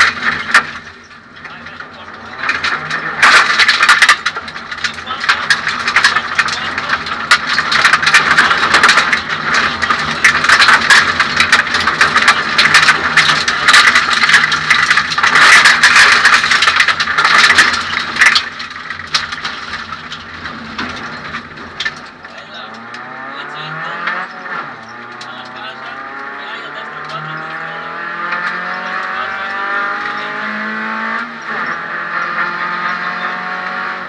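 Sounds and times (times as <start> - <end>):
car engine running hard: 0.0 - 34.0
road noise: 0.0 - 34.0
stones rattling on underbody: 2.2 - 23.2.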